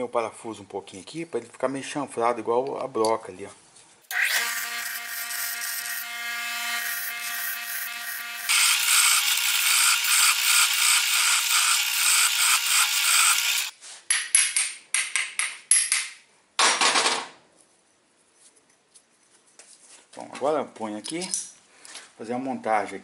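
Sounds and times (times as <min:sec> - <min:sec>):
grinder wheel grinding steel: 0:04.1 - 0:13.8.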